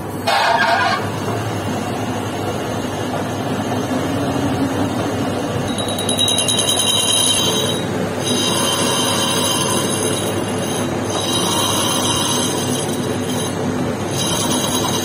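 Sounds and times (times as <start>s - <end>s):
metal lathe humming: 1.0s - 15.0s
pulsing metallic ringing of cutting: 5.6s - 15.0s.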